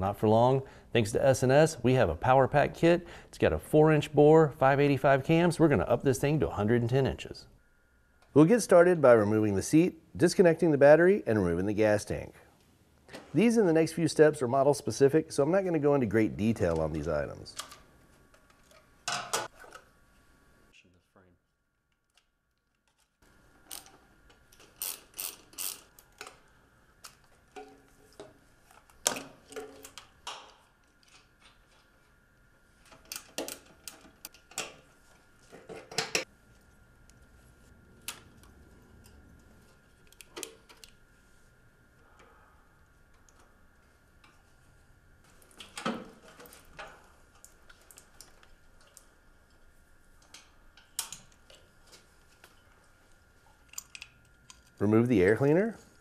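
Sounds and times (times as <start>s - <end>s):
faint steady hum: 0.0s - 56.0s
ratchet clicking: 24.6s - 25.9s.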